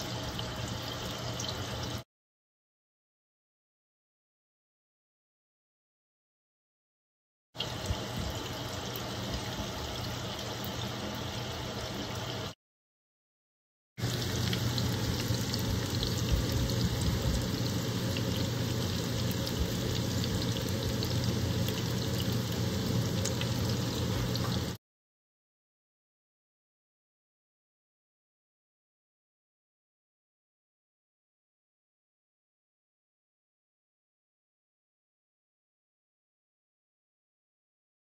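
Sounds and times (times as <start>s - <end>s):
fritters sizzling in hot oil: 0.0s - 2.0s, 7.6s - 12.6s, 14.0s - 24.8s.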